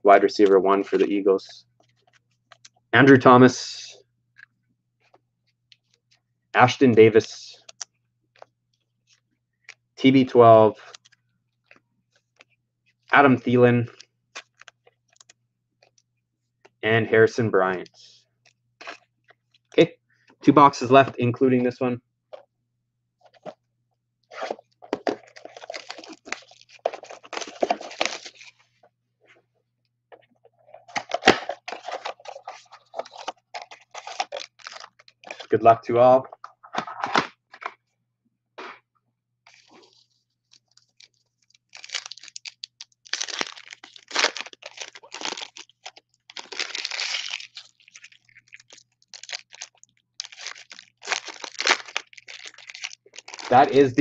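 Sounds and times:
plastic wrap and cardboard tearing: 0:24.3 - 0:28.5, 0:31.0 - 0:35.5, 0:40.8 - 0:54.0.

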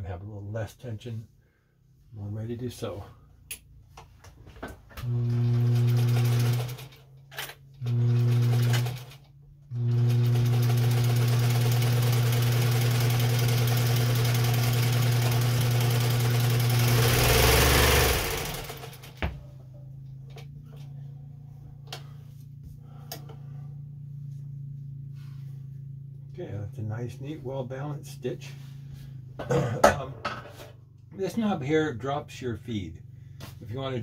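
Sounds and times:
sewing machine stitching: 0:05.0 - 0:19.2.

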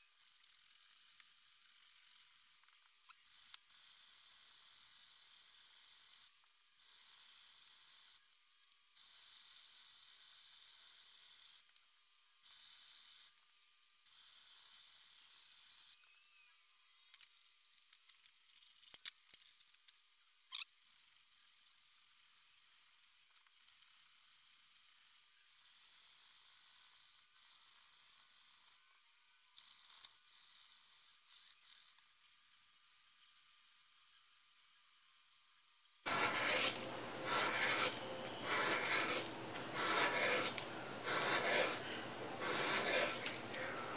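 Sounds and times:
sandpaper hissing on metal: 0:36.1 - 0:43.9.

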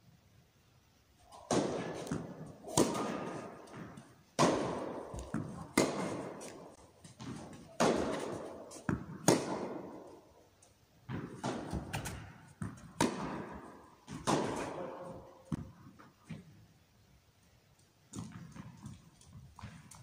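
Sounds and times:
tennis ball striking racket strings: 0:01.3 - 0:10.2, 0:11.1 - 0:14.8.

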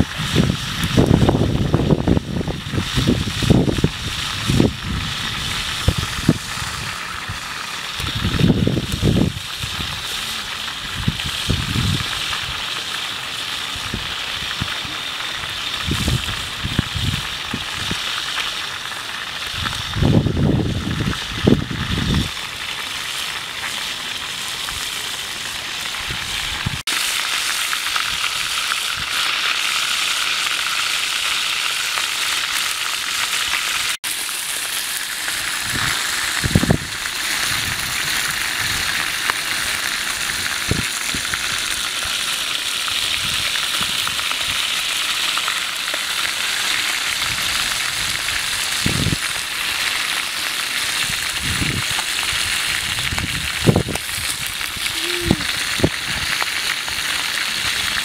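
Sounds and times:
wind gusts on microphone: 0:00.0 - 0:12.6, 0:15.7 - 0:18.0, 0:19.5 - 0:22.4, 0:25.9 - 0:26.8, 0:35.6 - 0:39.0, 0:40.2 - 0:42.2, 0:47.2 - 0:49.3, 0:51.0 - 0:56.4
fish sizzling in oil: 0:00.0 - 0:58.0.

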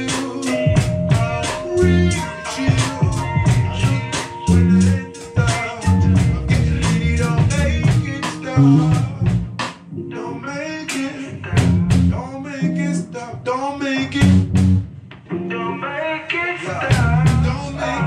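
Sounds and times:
drum kit: 0:00.0 - 0:09.9, 0:10.9 - 0:12.2, 0:14.0 - 0:15.2, 0:16.9 - 0:17.6
electric guitar and bass: 0:00.0 - 0:10.4, 0:11.2 - 0:15.7, 0:16.7 - 0:18.0
person singing: 0:00.0 - 0:14.4, 0:15.3 - 0:18.0.

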